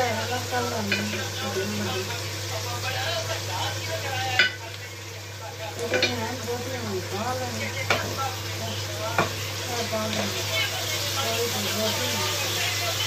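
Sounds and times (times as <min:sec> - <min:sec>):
onions sizzling in oil: 0:00.0 - 0:13.0
dishes clinking: 0:04.3 - 0:04.6, 0:05.9 - 0:06.2.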